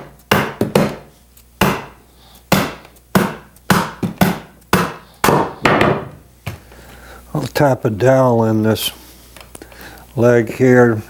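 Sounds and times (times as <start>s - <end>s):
rubber mallet knocking on wood: 0.0s - 1.0s, 2.5s - 6.2s.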